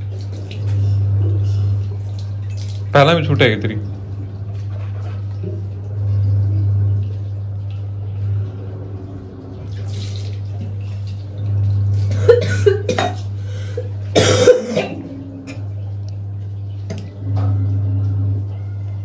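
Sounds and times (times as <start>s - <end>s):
steady low hum: 0.0s - 19.0s
water rinsing in a washbasin: 0.0s - 19.0s
woman coughing and clearing throat: 12.2s - 13.3s, 14.1s - 15.1s.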